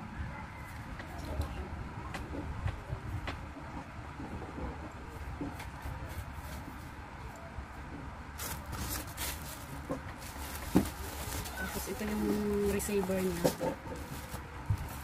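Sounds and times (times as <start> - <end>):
packaging rustling and crinkling: 8.4 - 15.0.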